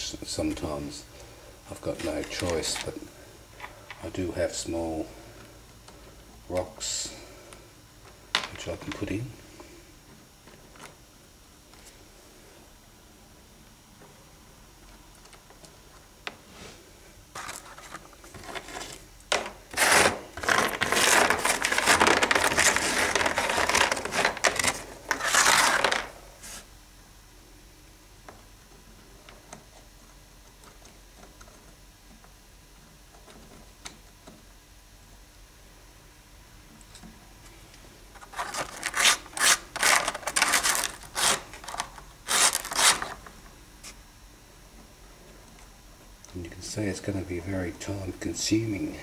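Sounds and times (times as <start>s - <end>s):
plaster scraping on sandpaper: 19.7s - 26.7s.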